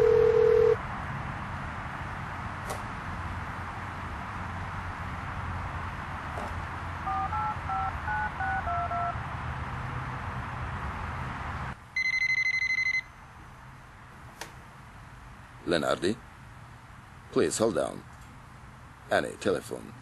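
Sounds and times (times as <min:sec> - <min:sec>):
warbling electronic telephone ring: 0:00.0 - 0:00.8
low background hum: 0:00.0 - 0:20.0.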